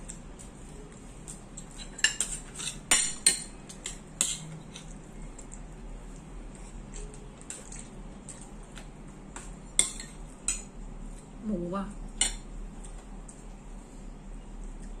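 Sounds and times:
cutlery clinking on dishes: 0:01.6 - 0:05.0.

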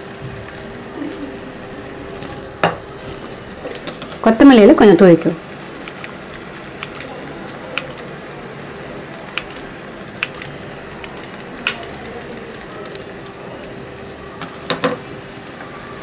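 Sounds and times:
faint hum: 0:00.0 - 0:16.0
steady hiss: 0:00.0 - 0:16.0.

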